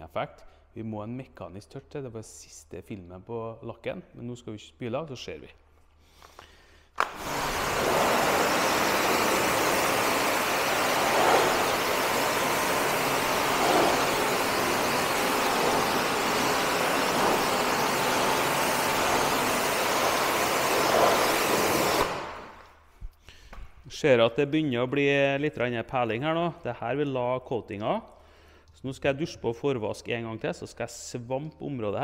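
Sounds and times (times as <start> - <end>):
pressure washer spraying water: 7.0 - 22.6.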